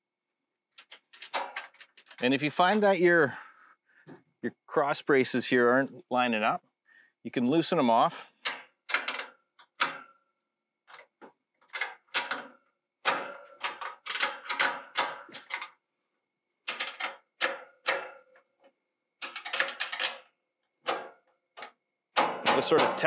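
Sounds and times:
sharp metal knocks: 11.9 - 15.7, 16.7 - 18.4, 20.8 - 21.3, 22.1 - 23.0.

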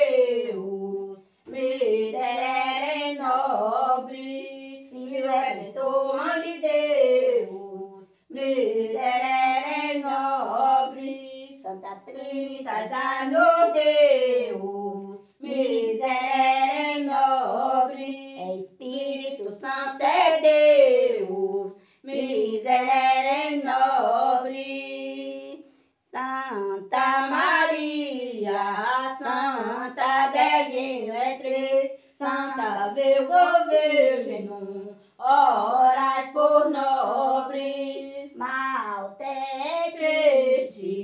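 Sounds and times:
woman singing unaccompanied hymn: 0.0 - 41.0.

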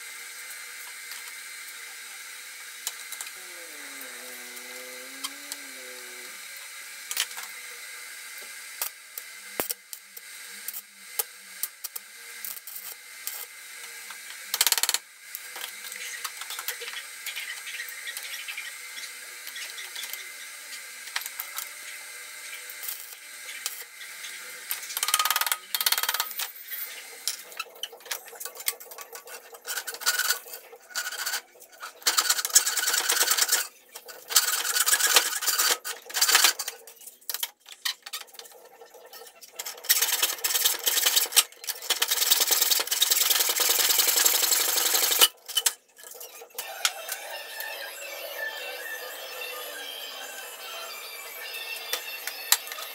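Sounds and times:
arc welding hiss: 0.0 - 37.4
hacksaw cutting steel: 24.7 - 50.8.

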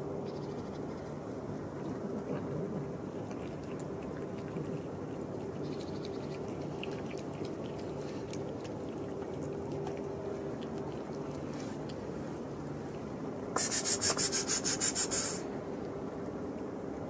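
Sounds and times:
low background hum: 0.0 - 17.0
cats crunching dry kibble: 2.0 - 13.1.

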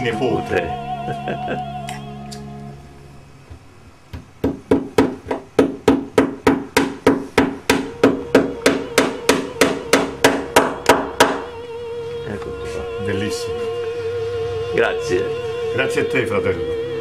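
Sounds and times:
hammer striking nail: 4.1 - 11.5.

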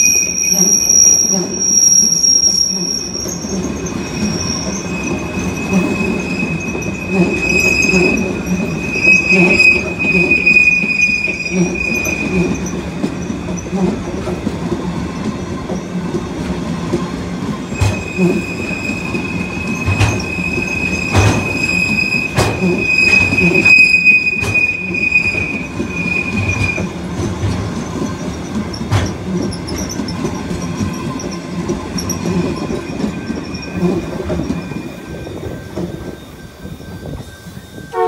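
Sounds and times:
train wheels squealing: 0.0 - 16.0, 16.8 - 38.0
low rumble of rolling wagons: 2.8 - 37.8
wheels clacking over rail joints: 12.0 - 36.6.

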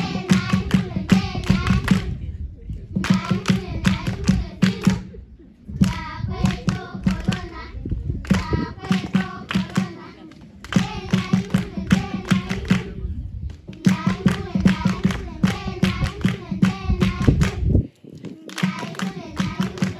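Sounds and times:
group of people singing: 0.0 - 2.2, 3.0 - 5.2, 5.8 - 13.0, 13.8 - 17.8, 18.5 - 19.9
hands clapping in rhythm: 0.0 - 2.2, 3.0 - 5.1, 5.8 - 7.6, 8.2 - 19.9.

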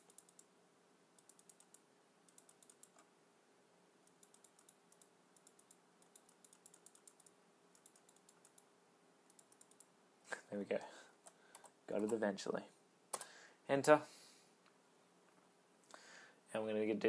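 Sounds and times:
faint keyboard typing: 0.0 - 0.5, 1.1 - 3.1, 4.0 - 10.0, 10.7 - 12.3, 13.1 - 13.4.

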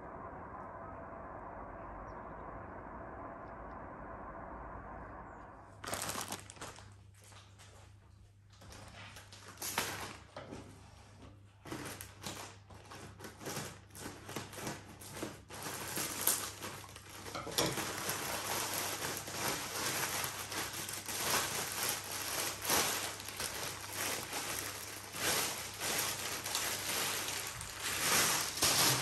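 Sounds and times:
plastic bag crinkling: 5.8 - 7.9, 8.5 - 10.4, 11.6 - 29.0.

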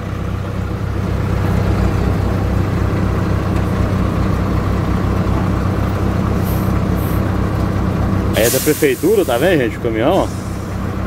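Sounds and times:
diesel truck engine idling: 0.0 - 11.0
brief hiss: 8.4 - 9.5.

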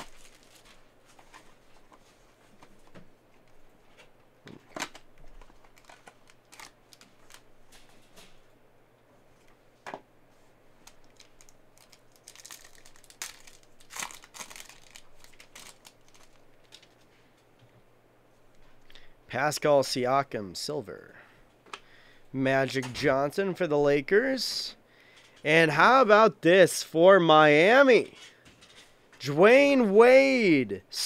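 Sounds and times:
wrapper crinkling and tearing: 0.0 - 1.4, 4.8 - 7.4, 10.8 - 17.0.

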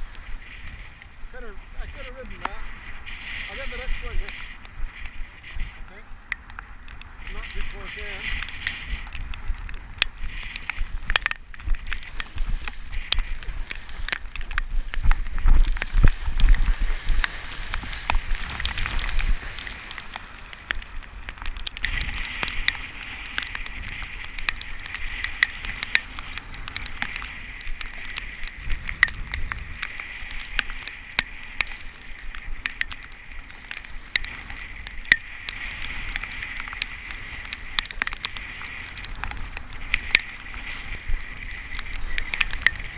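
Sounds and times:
hiss of wind-blown chop: 0.0 - 6.2, 7.0 - 21.2
wind rumble on microphone: 0.0 - 42.9
sea water splashing against kayak: 2.1 - 42.9
spray crackling clicks: 6.4 - 42.9.

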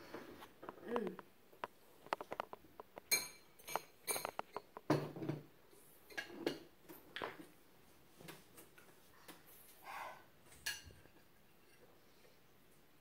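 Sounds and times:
dishes and cutlery clinking: 2.0 - 7.4, 10.5 - 12.2.

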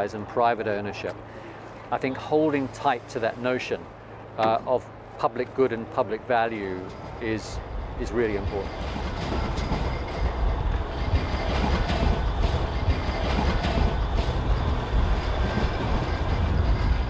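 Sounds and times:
train rumbling past: 6.1 - 17.0.

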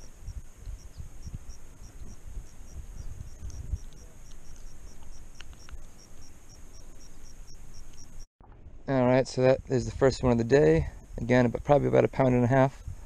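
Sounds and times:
crickets chirping: 0.0 - 8.3
small clicks: 3.4 - 6.2.

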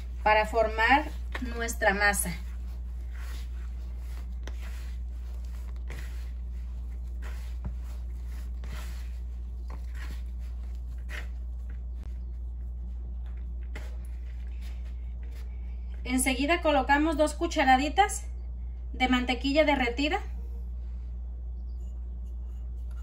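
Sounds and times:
hands mixing dough in plastic bowl: 0.0 - 16.8
low hum: 0.0 - 23.0.

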